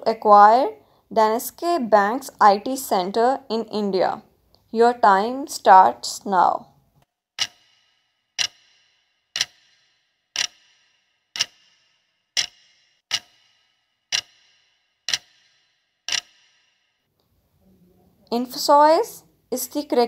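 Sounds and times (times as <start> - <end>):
clock ticking: 7.4 - 16.7.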